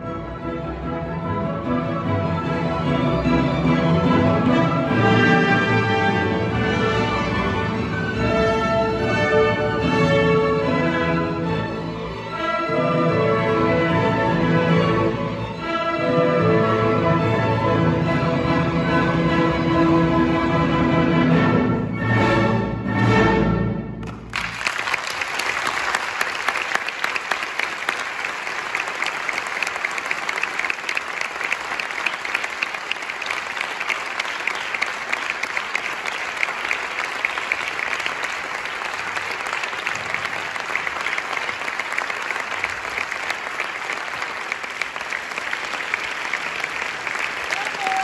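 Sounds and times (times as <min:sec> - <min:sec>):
audience applauding: 0:24.0 - 0:48.0.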